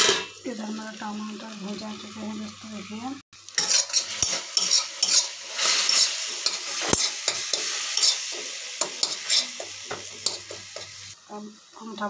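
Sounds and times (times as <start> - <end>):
tomatoes sizzling in oil: 0.0 - 12.0
utensil scraping against pan: 3.6 - 11.0.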